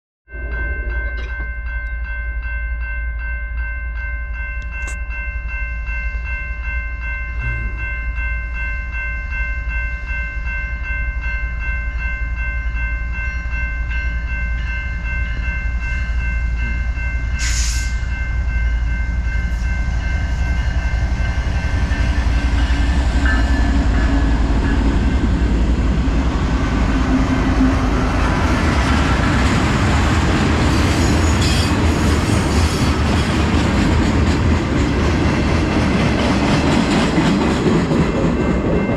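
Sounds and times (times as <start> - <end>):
pulsing high chord of tones: 0.3 - 32.4
rail noise: 4.4 - 38.9
diesel locomotives rumbling: 12.3 - 38.9.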